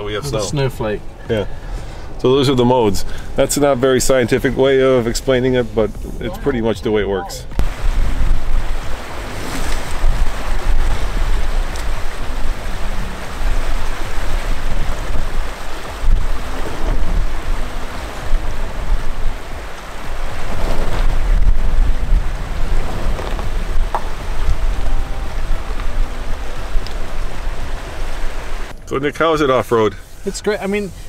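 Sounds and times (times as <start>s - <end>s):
low vehicle rumble: 0.0s - 31.0s
water splashing around wheels: 7.6s - 31.0s.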